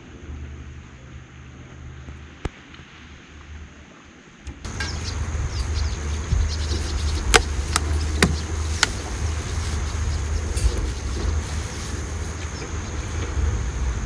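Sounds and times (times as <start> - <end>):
steady low rumble: 0.0 - 14.0
wind buffeting microphone: 4.5 - 14.0.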